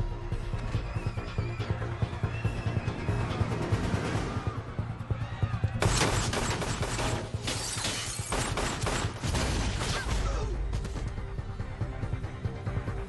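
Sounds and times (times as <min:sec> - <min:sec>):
tense action music: 0:00.0 - 0:13.0
rapid gunfire: 0:05.8 - 0:07.4, 0:08.1 - 0:10.1
glass shattering: 0:05.8 - 0:10.0.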